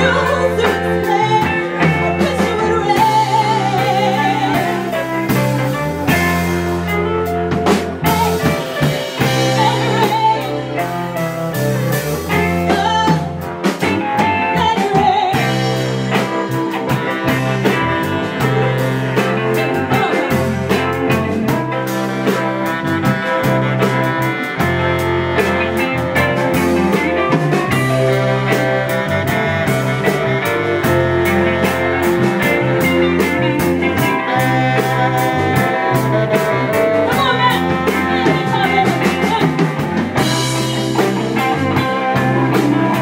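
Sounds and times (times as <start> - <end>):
woman singing with vibrato: 0.0 - 5.4, 8.0 - 11.2, 12.3 - 21.6, 33.3 - 43.0
soul band playing: 0.0 - 43.0.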